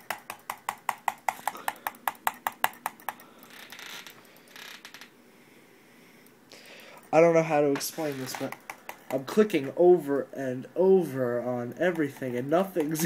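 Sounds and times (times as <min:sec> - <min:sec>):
mouse button clicking rapidly: 0:00.0 - 0:03.2, 0:08.5 - 0:09.3.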